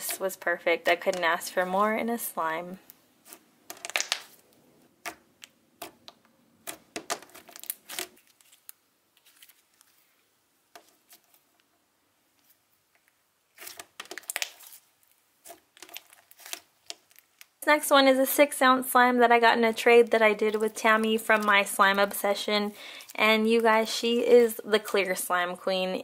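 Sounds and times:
slime clicking and crackling: 3.3s - 4.4s, 5.0s - 8.8s, 13.5s - 14.8s, 15.4s - 17.6s.

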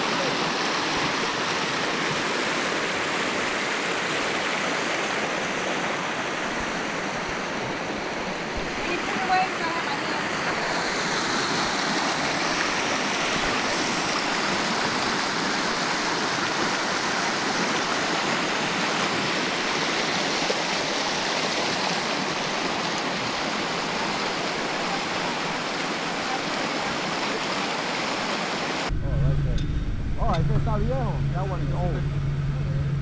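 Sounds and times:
steady rushing noise: 28.8s - 33.0s.

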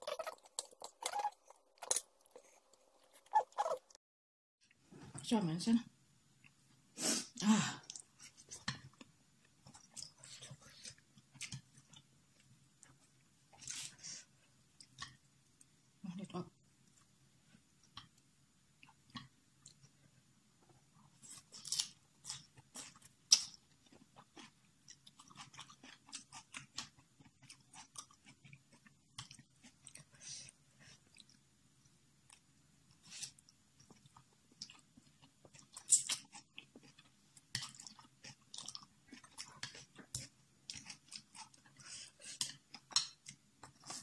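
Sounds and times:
person chewing and mouth clicks: 0.0s - 4.0s, 7.8s - 13.9s, 21.1s - 31.4s, 33.2s - 44.0s.

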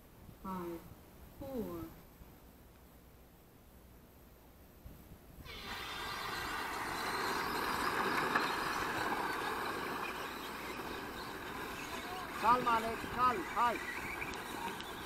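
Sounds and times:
model car motors buzzing: 5.4s - 15.0s.

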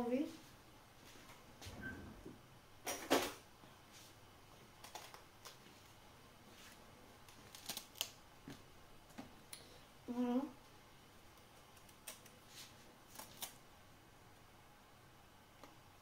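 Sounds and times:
leaves snapping: 7.2s - 8.2s, 13.1s - 13.6s.

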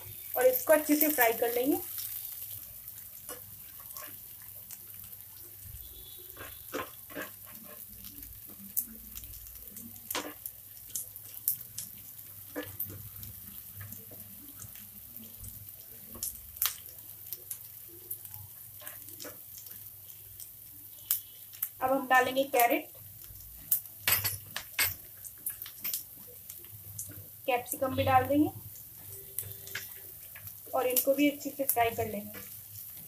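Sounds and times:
cabbage sizzling in oil: 0.0s - 33.0s
spatula scraping a pan: 6.0s - 8.2s.

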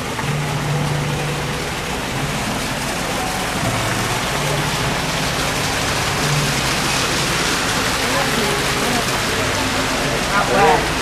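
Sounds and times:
small waterfall splashing: 0.0s - 11.0s.

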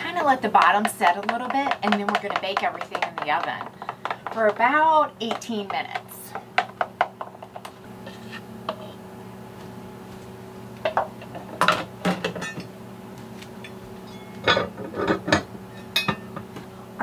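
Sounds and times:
skillet knocking on hob grate: 0.4s - 7.7s.

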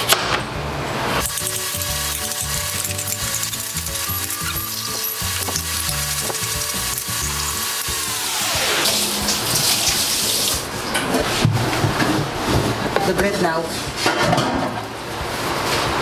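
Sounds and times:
background music with held chords: 0.7s - 10.8s.

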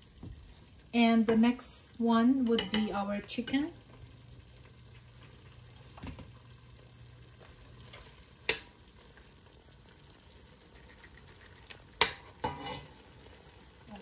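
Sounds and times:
sauce sizzling in a pot: 0.0s - 14.0s
metal spoon knocking on pot: 2.5s - 2.9s.

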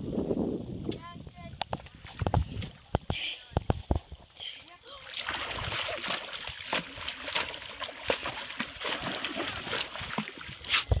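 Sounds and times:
dog splashing in water: 5.1s - 11.0s.

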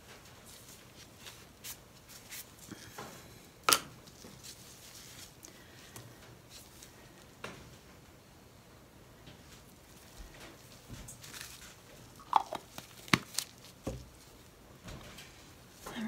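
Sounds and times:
paper rustling: 0.0s - 2.8s, 4.0s - 7.2s, 9.5s - 14.5s.

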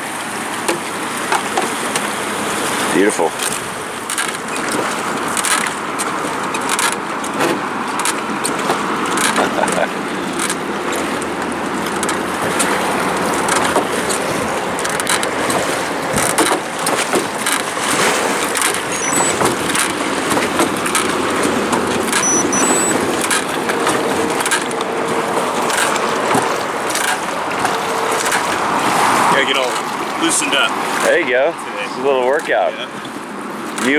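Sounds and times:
oars splashing: 0.0s - 33.9s
river water lapping along hull: 0.0s - 33.9s
oars knocking in oarlocks: 10.4s - 28.8s.

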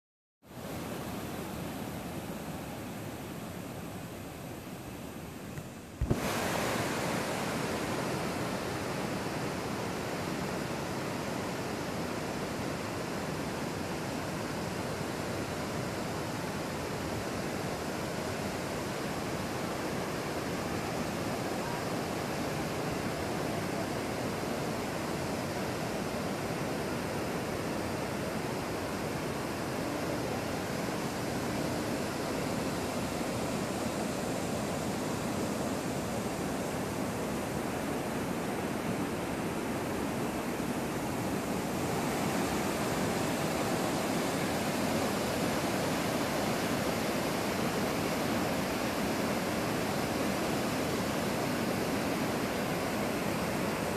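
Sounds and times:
waterfall and rapids rushing: 0.5s - 53.9s.

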